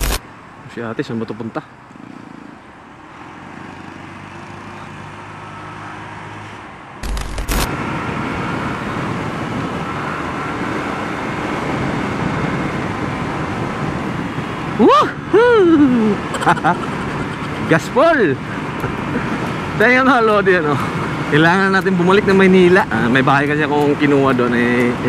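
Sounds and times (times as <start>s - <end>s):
wind buffeting microphone: 7.6s - 17.8s.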